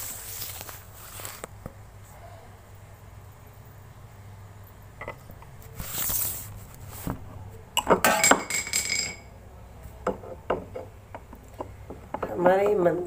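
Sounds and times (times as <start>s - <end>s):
small objects clinking and ringing: 7.8s - 9.3s.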